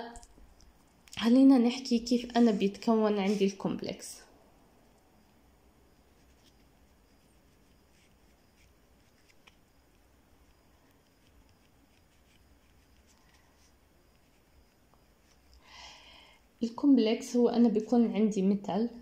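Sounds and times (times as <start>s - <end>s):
pen scratching on paper: 6.0s - 15.5s.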